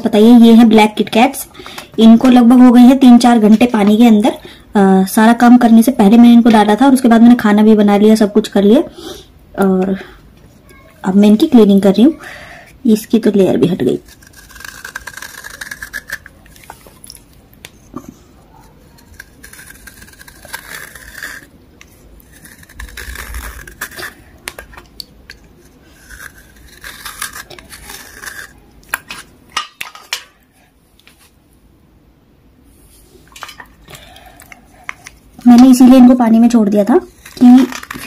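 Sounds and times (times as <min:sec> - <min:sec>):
knife scraping chalk: 0:13.9 - 0:17.0, 0:18.6 - 0:29.3, 0:37.0 - 0:38.0.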